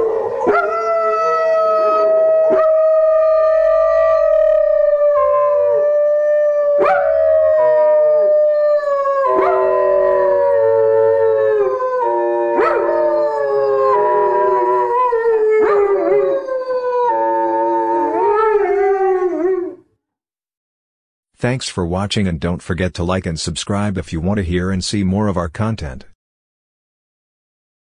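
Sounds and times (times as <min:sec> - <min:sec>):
dogs howling: 0:00.0 - 0:19.8.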